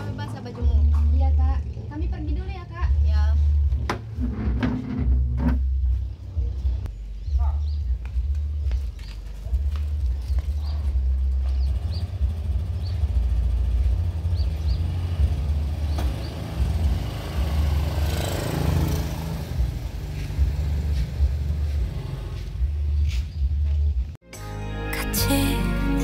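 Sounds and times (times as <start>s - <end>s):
scooter engine running: 9.3s - 15.6s.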